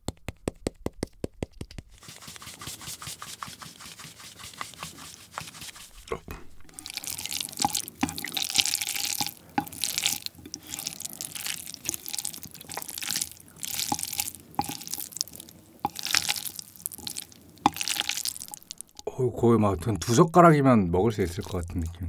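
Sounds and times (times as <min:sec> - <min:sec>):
wet sticky squelching of noodles: 0:04.2 - 0:19.1.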